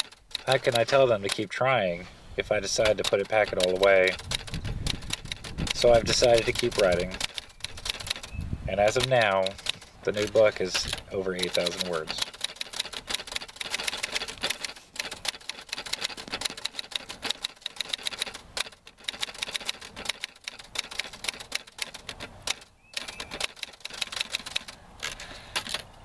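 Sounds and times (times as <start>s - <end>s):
typewriter keys clacking: 0.0s - 1.5s, 2.4s - 25.9s.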